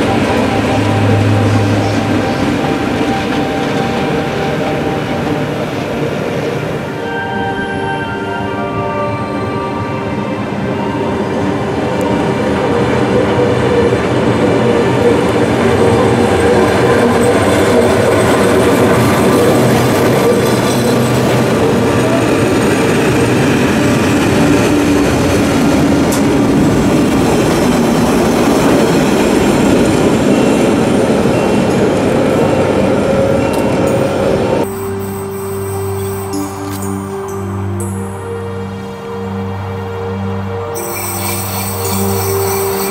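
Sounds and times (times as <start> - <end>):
locomotive whine: 0.0 - 42.9
train wheels rolling on rails: 11.8 - 37.4.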